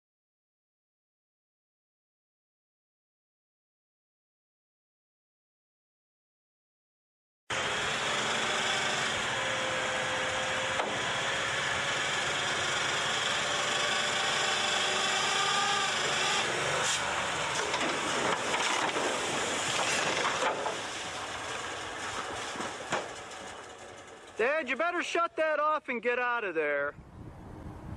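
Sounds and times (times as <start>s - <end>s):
truck engine running: 7.5s - 25.9s
truck creaks and knocks: 17.5s - 24.4s.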